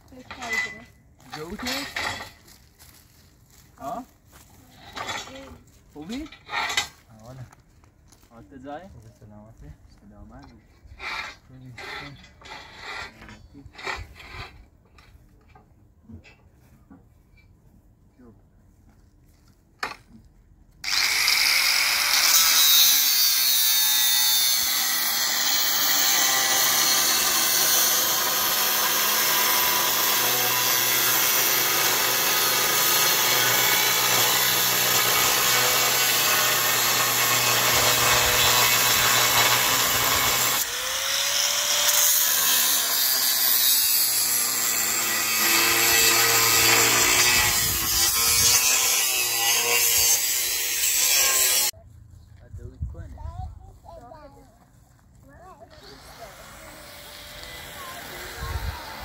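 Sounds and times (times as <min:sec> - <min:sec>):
angle grinder cutting steel: 0:20.8 - 0:51.8, 0:55.7 - 0:59.0.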